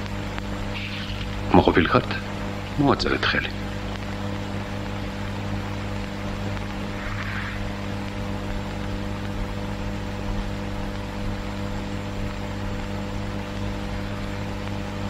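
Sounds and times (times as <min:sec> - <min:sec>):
electrical hum with hiss: 0:00.0 - 0:15.0
faint brief sound: 0:06.8 - 0:08.4.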